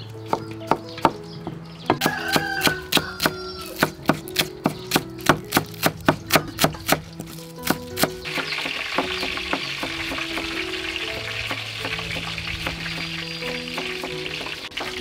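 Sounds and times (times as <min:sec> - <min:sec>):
cleaver chopping on wooden board: 0:00.3 - 0:10.5.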